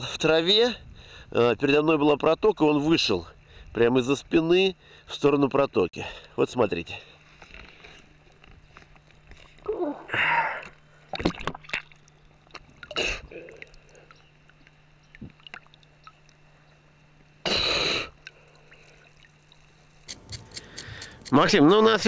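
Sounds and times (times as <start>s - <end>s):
faint steady hum: 0.0s - 22.0s
water sloshing and splashing: 11.0s - 17.4s, 18.2s - 20.1s.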